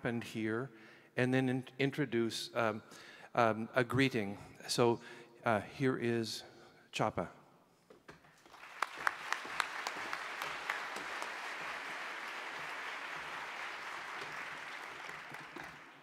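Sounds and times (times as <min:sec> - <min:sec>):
audience applauding: 0:08.4 - 0:16.0.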